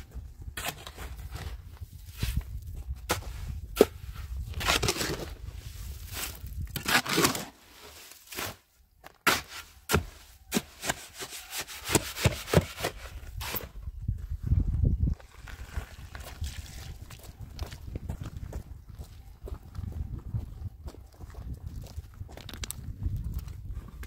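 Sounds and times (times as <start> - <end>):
shovel scraping dry earth: 0.0 - 13.9, 15.2 - 18.4.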